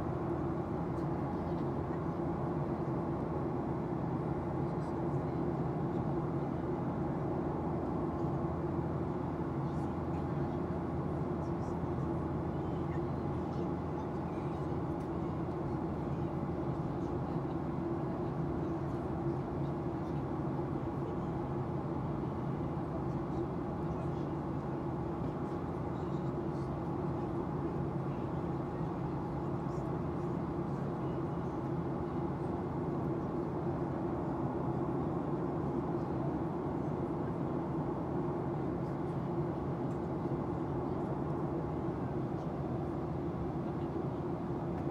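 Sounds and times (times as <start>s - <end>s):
jet engine low hum: 0.0s - 44.9s
airflow rushing in cabin: 20.4s - 44.9s.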